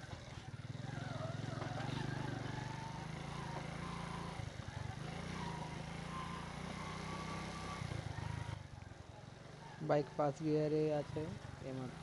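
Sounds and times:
motorcycle engine under load: 0.0s - 12.0s.

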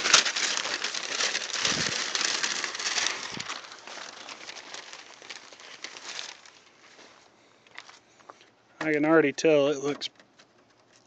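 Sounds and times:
paper crumpling and rustling: 0.0s - 7.9s.

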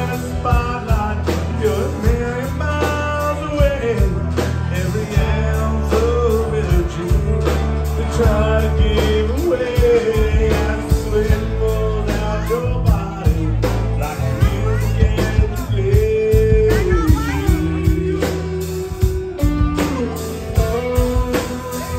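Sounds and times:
country-rock band playing: 0.0s - 21.9s
man singing: 0.0s - 21.9s.

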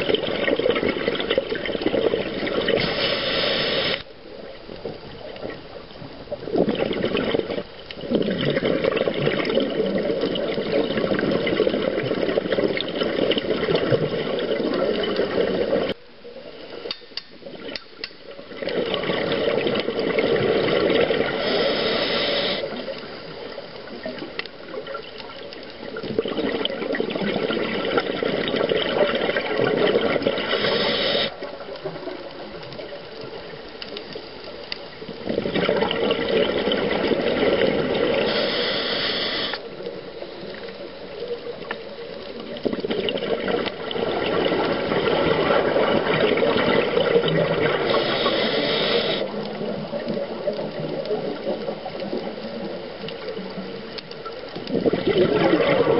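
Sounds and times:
exhaled bubbles gurgling: 0.0s - 16.8s, 17.4s - 55.9s
quiet inhalations: 2.7s - 4.2s, 21.2s - 23.6s, 30.3s - 31.5s, 38.1s - 39.8s, 47.8s - 49.4s
regulator hiss: 2.8s - 4.1s, 21.4s - 22.8s, 30.4s - 31.4s, 38.2s - 39.7s, 47.8s - 49.3s.

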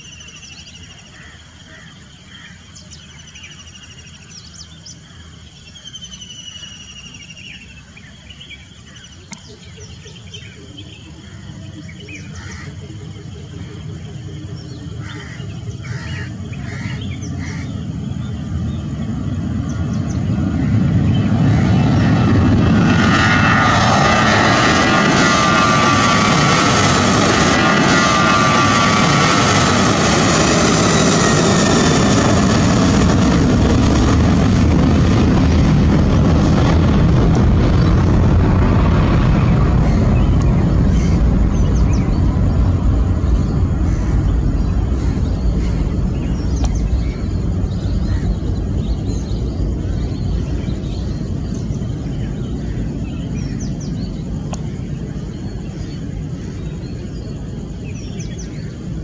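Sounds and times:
jet engines rumbling: 0.0s - 59.0s
jet engine whining tone: 8.9s - 59.0s.

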